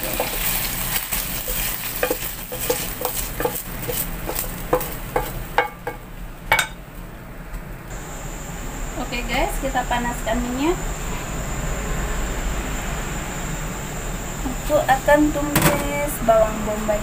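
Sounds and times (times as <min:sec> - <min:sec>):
metal spatula scraping a wok: 0:00.0 - 0:05.4
wok sizzling: 0:00.0 - 0:17.0.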